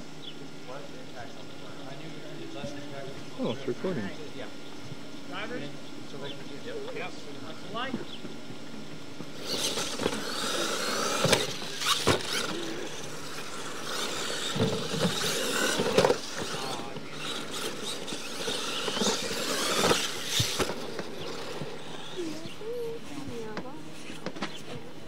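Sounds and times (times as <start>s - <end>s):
electric motors whining: 0.0s - 25.0s
toy trucks landing knocks: 9.4s - 22.0s.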